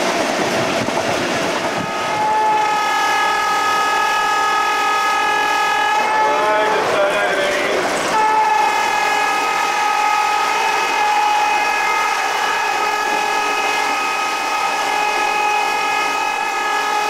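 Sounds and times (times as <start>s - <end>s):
train rushing at speed: 0.0s - 17.0s
locomotive high-pitched shriek: 1.7s - 17.0s.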